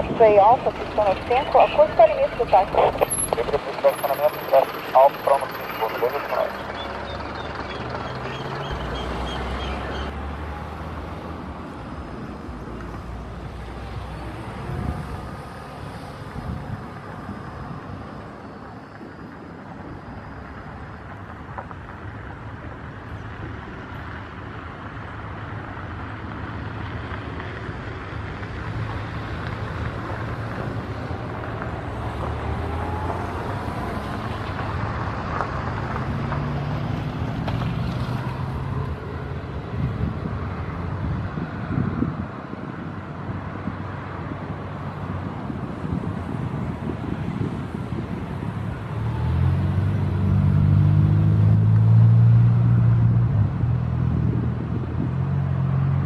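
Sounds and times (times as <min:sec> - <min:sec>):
jet engines running: 0:00.0 - 0:09.9
wind on microphone: 0:39.3 - 0:50.3, 0:52.8 - 0:55.3.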